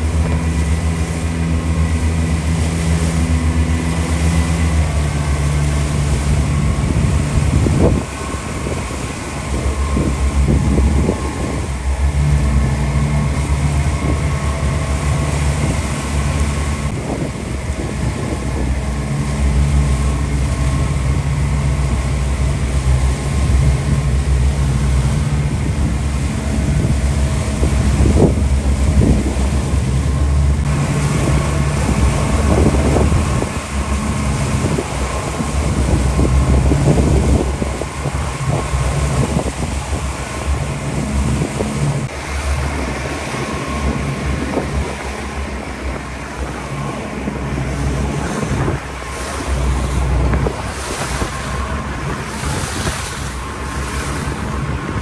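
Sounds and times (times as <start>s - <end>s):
motorboat engine running: 0.0s - 55.0s
water rushing past: 0.0s - 55.0s
wind buffeting microphone: 0.0s - 55.0s.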